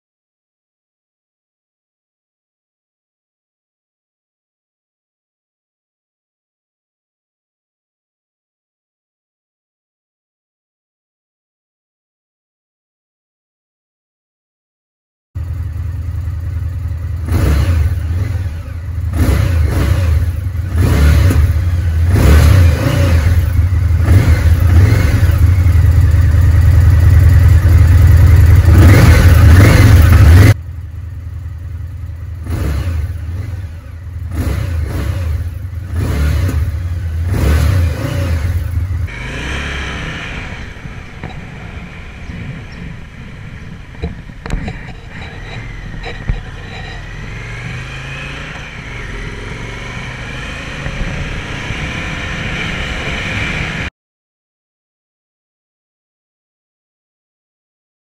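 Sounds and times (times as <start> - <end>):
motorcycle engine revving: 15.4 - 53.9
motorcycle riding along road: 15.4 - 53.9.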